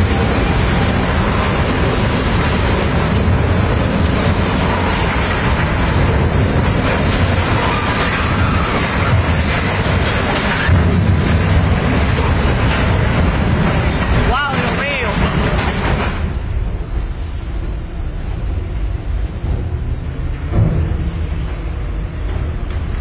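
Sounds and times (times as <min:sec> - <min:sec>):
hull scraping concrete wall: 0:00.0 - 0:16.5.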